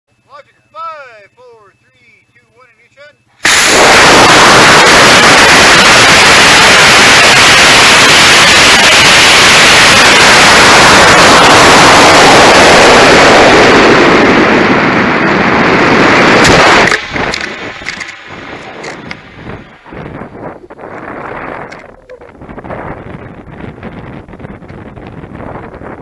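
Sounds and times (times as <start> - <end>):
model rocket motor burning: 3.4 - 20.0.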